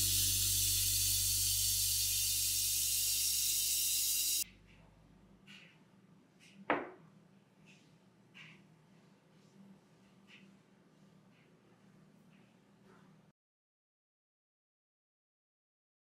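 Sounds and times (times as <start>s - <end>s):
faucet water running into sink: 0.0s - 4.4s
vase knocking on counter: 6.7s - 7.0s.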